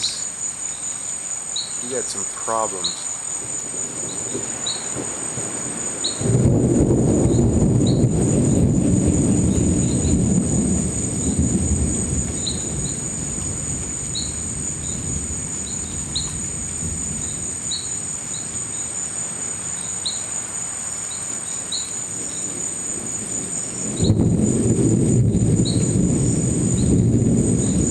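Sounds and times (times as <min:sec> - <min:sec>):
crickets trilling: 0:00.0 - 0:27.9
low thunder rumble: 0:03.2 - 0:19.0, 0:22.1 - 0:27.9.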